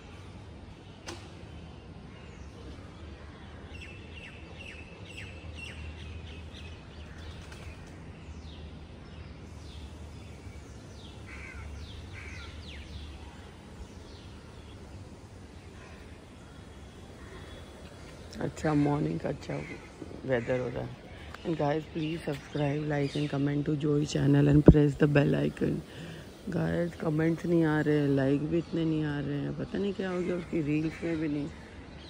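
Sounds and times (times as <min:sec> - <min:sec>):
small birds chirping: 0:00.7 - 0:32.0
crows cawing: 0:11.3 - 0:12.6.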